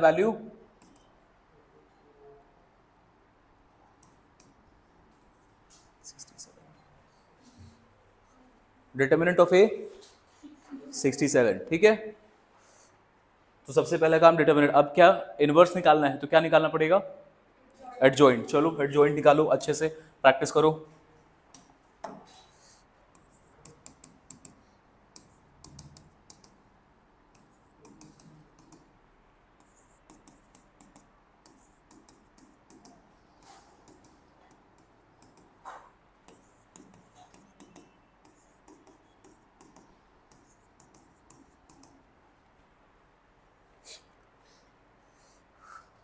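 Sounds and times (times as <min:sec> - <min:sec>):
pen scratching while writing: 0:23.2 - 0:24.6, 0:29.6 - 0:42.0.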